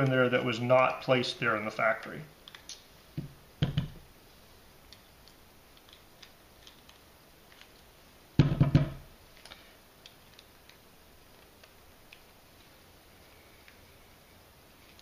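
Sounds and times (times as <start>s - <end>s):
loud knocks on case: 8.4s - 9.0s.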